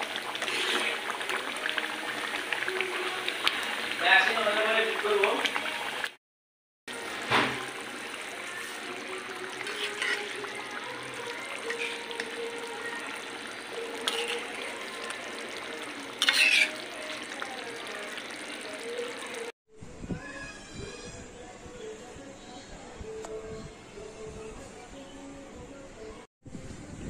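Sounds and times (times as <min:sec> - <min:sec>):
curry bubbling and sizzling: 0:00.0 - 0:06.2, 0:06.9 - 0:19.6
metal spatula scraping pan: 0:00.4 - 0:01.1, 0:09.6 - 0:10.6, 0:11.5 - 0:12.4, 0:13.3 - 0:14.9, 0:16.0 - 0:17.3.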